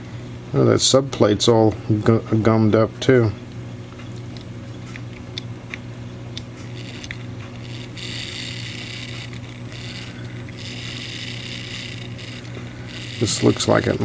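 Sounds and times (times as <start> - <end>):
low constant hum: 0.0 - 14.0
high whirring of clock wheels: 6.4 - 14.0.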